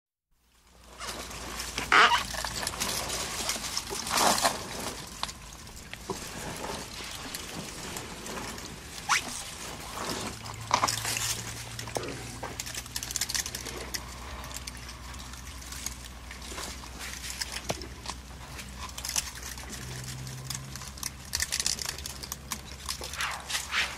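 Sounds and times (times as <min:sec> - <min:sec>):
leaves and branches rustling: 0:00.4 - 0:23.9
rain patter: 0:00.4 - 0:23.9
foliage breaking: 0:00.9 - 0:15.0.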